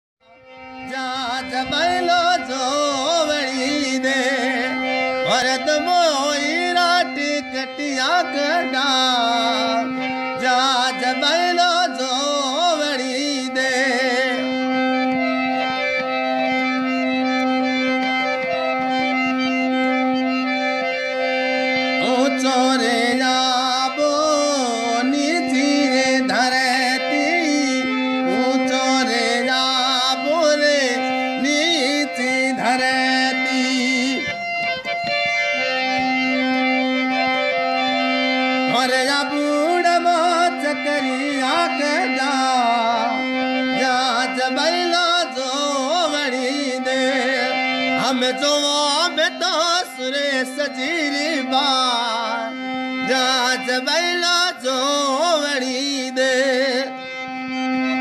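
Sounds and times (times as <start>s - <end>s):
person singing ornamented melody: 0.8s - 15.2s, 21.9s - 34.6s, 38.7s - 57.2s.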